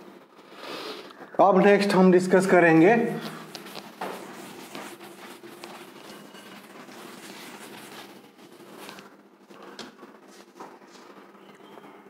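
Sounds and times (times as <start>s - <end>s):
cloth duster rubbing chalkboard: 1.8s - 9.2s.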